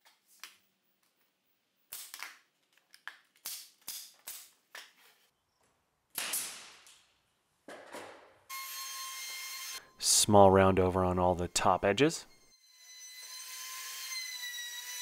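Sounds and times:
router running with a whine: 0:12.6 - 0:15.0.

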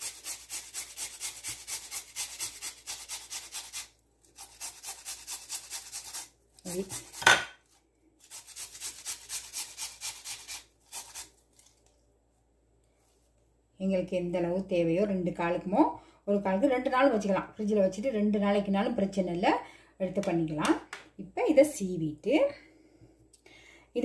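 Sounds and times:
potato grating on metal grater: 0:00.0 - 0:11.7.

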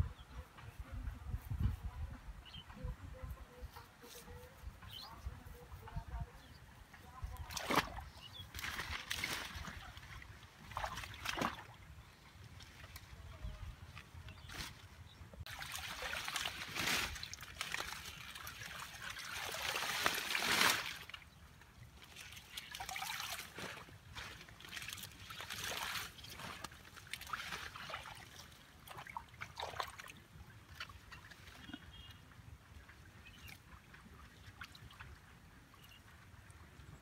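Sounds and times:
hands splashing in pond water: 0:07.4 - 0:12.0, 0:15.5 - 0:21.2, 0:21.9 - 0:32.1.

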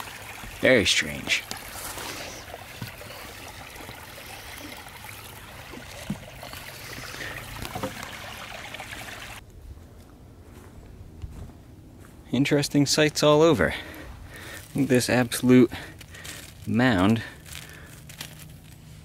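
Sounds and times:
brook trickling: 0:00.0 - 0:09.4.

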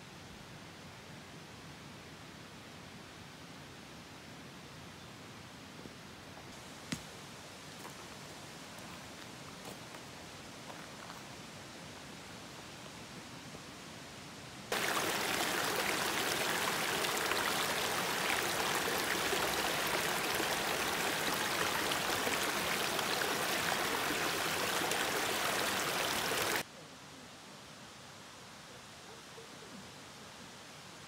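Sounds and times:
river rushing over stones: 0:14.7 - 0:26.7.

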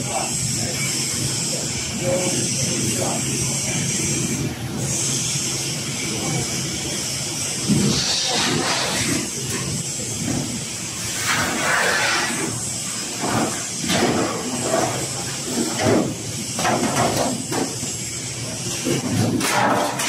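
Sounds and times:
factory noise hiss: 0:00.0 - 0:20.0
steel sheets scraping: 0:07.8 - 0:09.3, 0:11.0 - 0:15.8.

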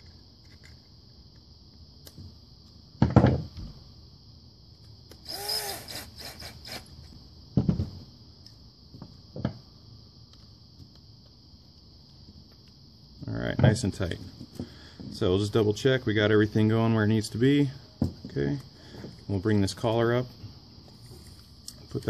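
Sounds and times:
tools knocking on wooden bench: 0:03.0 - 0:03.5, 0:07.6 - 0:08.0
cordless drill motor whine: 0:05.1 - 0:06.9.

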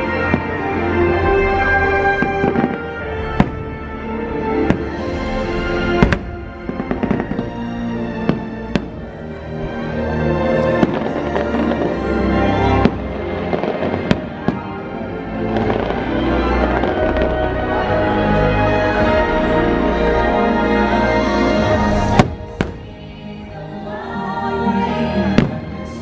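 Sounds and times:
fireworks bursting: 0:00.0 - 0:09.2, 0:10.6 - 0:14.8, 0:15.4 - 0:17.6, 0:21.8 - 0:23.0
soundtrack music: 0:00.0 - 0:26.0.

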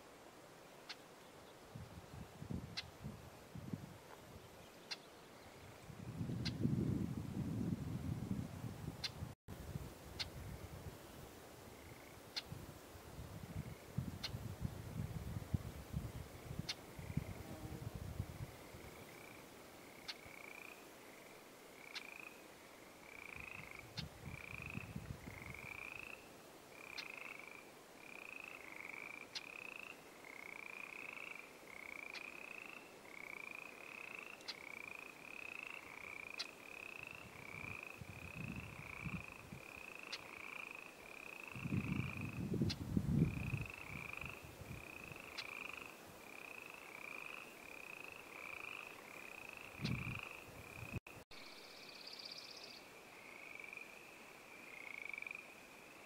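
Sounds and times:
frogs croaking: 0:11.7 - 0:12.5, 0:16.4 - 0:17.4, 0:18.4 - 0:56.0.

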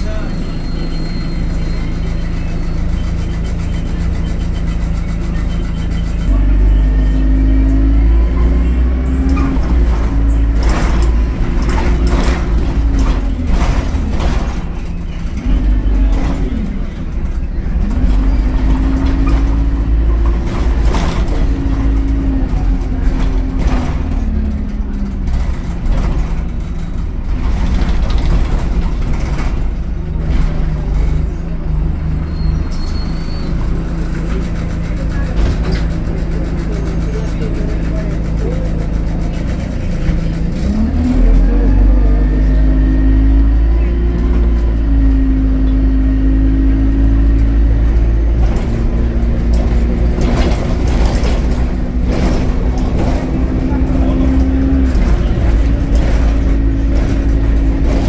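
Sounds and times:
bus engine accelerating: 0:00.0 - 0:58.0
rattles: 0:09.2 - 0:31.5, 0:43.0 - 0:58.0.

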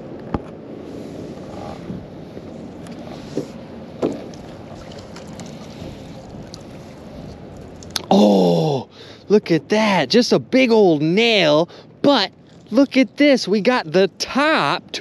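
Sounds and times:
wind noise on microphone: 0:00.0 - 0:08.0.

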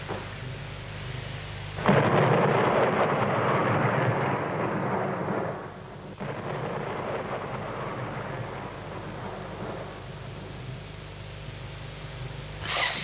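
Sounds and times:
steady rain: 0:00.0 - 0:13.0
thunder rumbling: 0:01.8 - 0:10.6.

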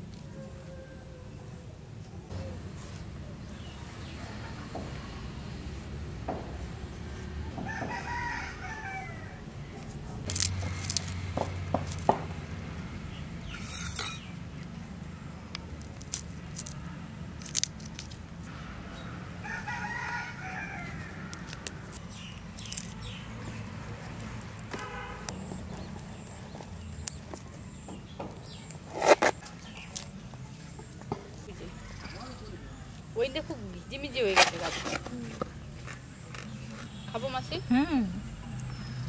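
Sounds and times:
rooster crowing: 0:00.2 - 0:01.6, 0:07.6 - 0:09.4, 0:19.4 - 0:21.5
garlic being peeled by hand: 0:09.8 - 0:18.5, 0:20.8 - 0:32.3, 0:34.3 - 0:37.1.

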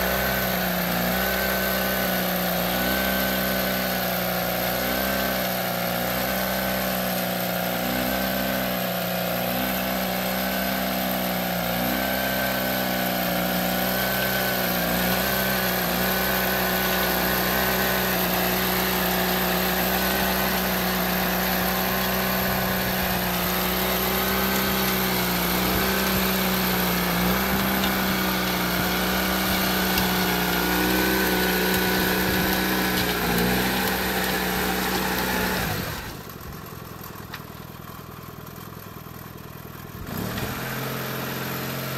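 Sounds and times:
tiller engine running: 0:00.0 - 0:41.9.

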